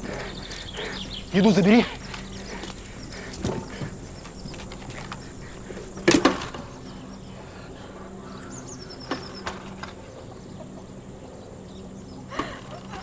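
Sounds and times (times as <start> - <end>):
low steady hum: 0.0 - 13.0
light clicks: 2.0 - 6.7.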